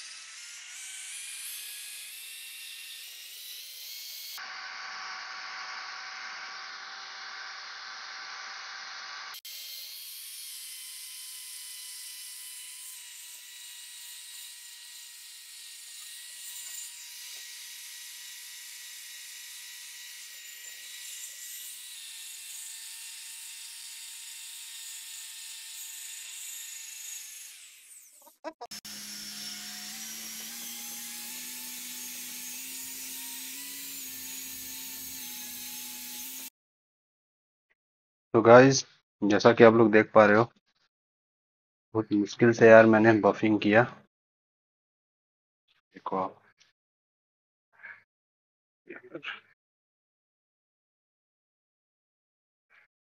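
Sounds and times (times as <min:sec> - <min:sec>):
electric drill motor whine: 0:04.3 - 0:09.8, 0:28.7 - 0:36.5.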